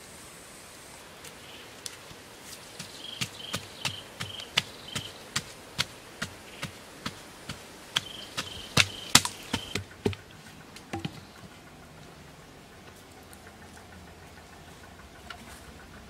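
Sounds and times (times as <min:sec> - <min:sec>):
insect chirping: 0:00.0 - 0:12.9
digging stick knocking into earth: 0:02.8 - 0:10.2, 0:10.8 - 0:11.2.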